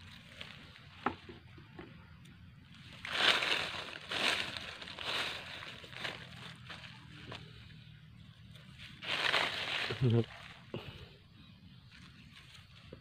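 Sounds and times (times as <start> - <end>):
dry leaves rustling and crunching: 0.0 - 1.3, 2.7 - 7.8, 8.4 - 11.0, 11.9 - 13.0.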